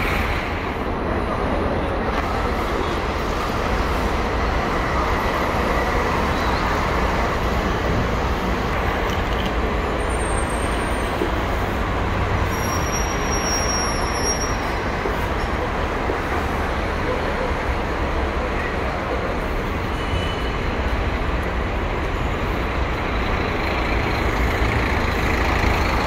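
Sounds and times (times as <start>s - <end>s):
bus engines rumbling: 0.0s - 26.0s.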